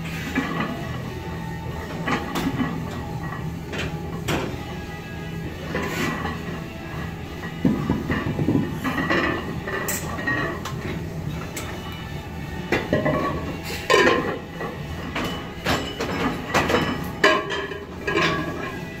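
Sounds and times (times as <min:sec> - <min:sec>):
barbell plates clanking: 0:05.6 - 0:12.0, 0:12.7 - 0:18.8.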